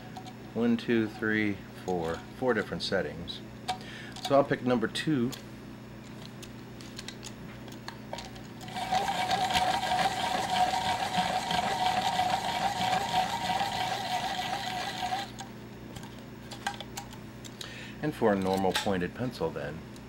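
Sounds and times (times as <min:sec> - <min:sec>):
pencil sharpener whirring grind: 0:08.6 - 0:15.4.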